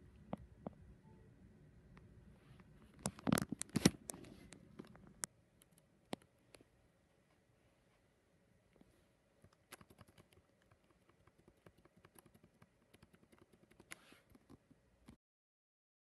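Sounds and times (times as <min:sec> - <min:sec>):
laptop keyboard keys clicking: 0:09.4 - 0:14.6.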